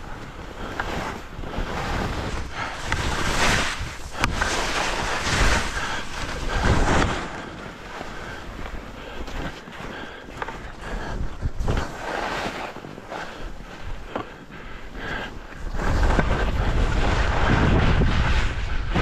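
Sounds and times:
wind buffeting microphone: 0:00.0 - 0:09.6, 0:10.8 - 0:12.0, 0:15.6 - 0:19.0
skis hissing over snow: 0:00.6 - 0:08.8, 0:11.8 - 0:13.8.

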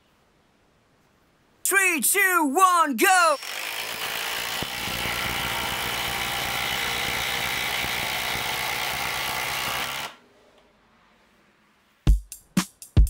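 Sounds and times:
impact drivers hammering: 0:03.8 - 0:10.2.

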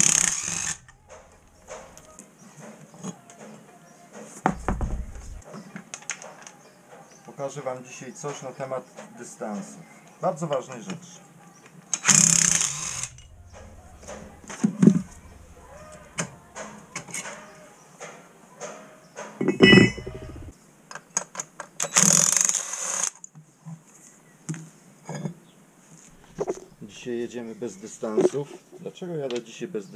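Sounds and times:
harsh rasping bursts: 0:00.0 - 0:02.1, 0:12.0 - 0:16.6
hand tools clicking and knocking: 0:00.0 - 0:03.6
metallic clank with ring: 0:19.4 - 0:20.5.

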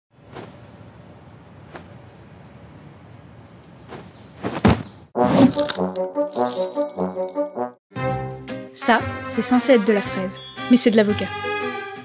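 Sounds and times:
outdoor background noise: 0:00.1 - 0:05.2.

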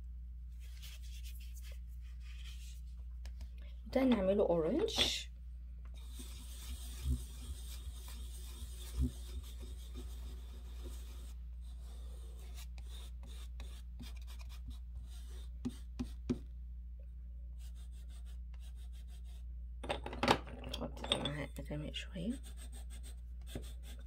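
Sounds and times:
steady low hum: 0:00.0 - 0:20.0
chalk scratching on paper: 0:00.6 - 0:03.4, 0:06.0 - 0:16.4, 0:17.6 - 0:19.4, 0:22.2 - 0:24.0.

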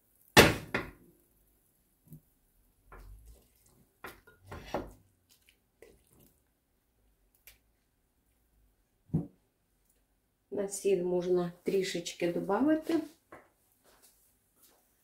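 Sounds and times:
spatula scraping in a pot: 0:03.0 - 0:05.0.

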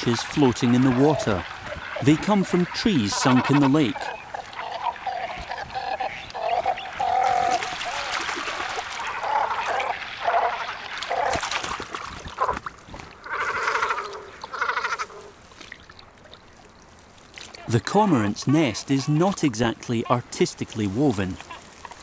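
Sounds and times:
cormorants calling: 0:00.0 - 0:15.4, 0:17.6 - 0:22.0
bird landing on water splash: 0:07.2 - 0:09.8, 0:10.9 - 0:13.1.

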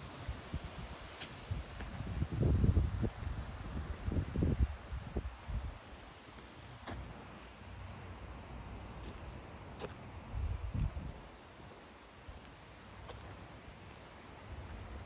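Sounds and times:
cricket chirping: 0:01.0 - 0:12.2.

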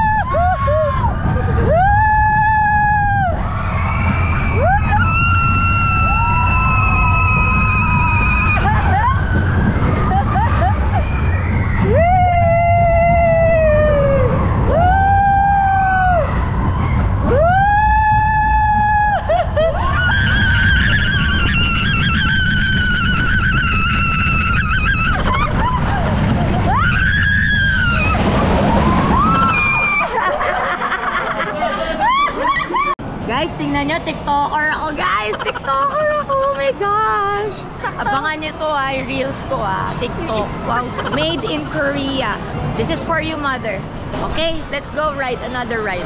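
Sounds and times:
riders screaming: 0:00.0 - 0:30.2
wind and running coaster rumble: 0:00.0 - 0:32.4, 0:33.0 - 0:46.0.

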